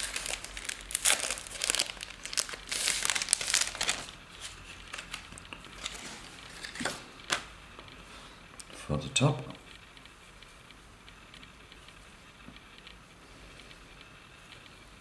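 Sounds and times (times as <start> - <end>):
synthetic fibres crinkling: 0.0 - 8.0.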